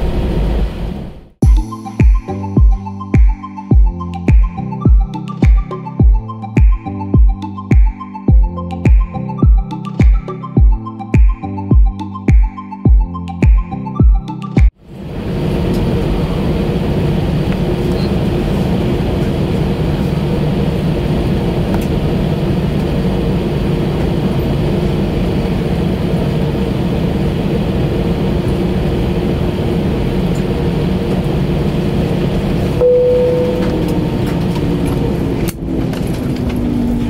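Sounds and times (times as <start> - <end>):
aircraft engine hum: 0.0 - 1.5, 14.7 - 37.0
short high tone: 32.8 - 34.2
low droning tones: 32.8 - 37.0.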